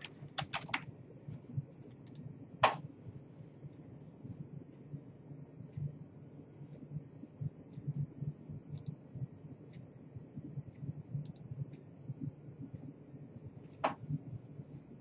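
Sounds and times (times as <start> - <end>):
computer mouse clicks: 0.0 - 0.8, 1.9 - 2.3, 8.7 - 9.0, 11.2 - 11.5
low pulsing hum: 0.0 - 15.0.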